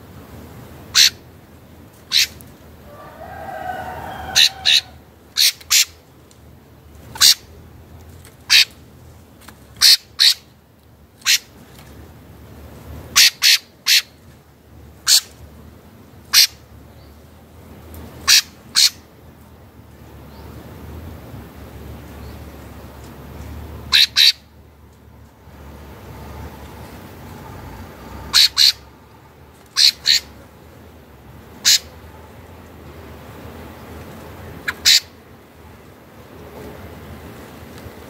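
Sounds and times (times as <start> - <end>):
wavering low bird call: 0.9 - 1.2, 2.1 - 6.0, 23.9 - 24.5, 27.9 - 29.0, 29.7 - 30.4, 34.6 - 35.2.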